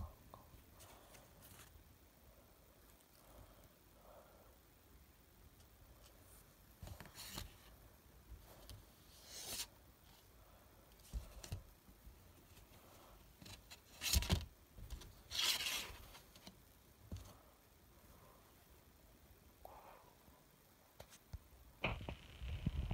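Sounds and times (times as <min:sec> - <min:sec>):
paper rustling: 0:13.4 - 0:16.5.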